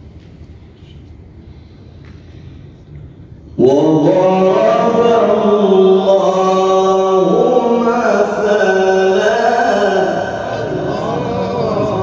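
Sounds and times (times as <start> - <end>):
man chanting melodic recitation: 3.6 - 12.0.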